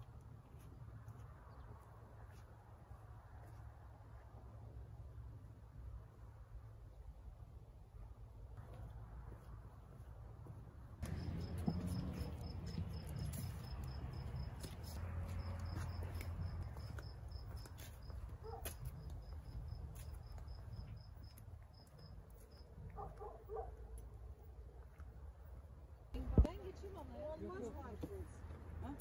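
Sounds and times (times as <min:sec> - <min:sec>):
cricket chirping: 0:11.0 - 0:23.7.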